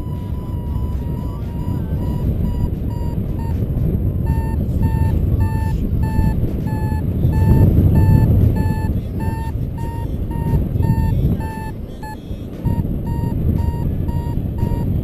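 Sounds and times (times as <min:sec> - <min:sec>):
wind rush on microphone: 0:00.0 - 0:11.7
variometer short high beeps: 0:00.0 - 0:15.0.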